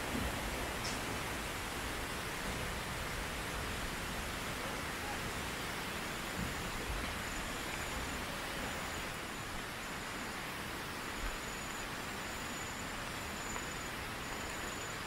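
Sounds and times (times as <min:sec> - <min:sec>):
steady rushing hiss: 0:00.0 - 0:15.0
high insect trill: 0:05.8 - 0:15.0.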